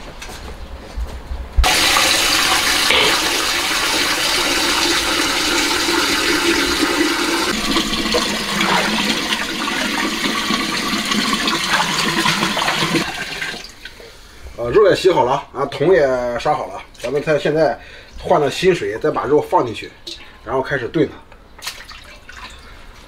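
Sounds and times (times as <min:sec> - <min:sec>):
tap water running into metal pot: 0:01.6 - 0:13.9.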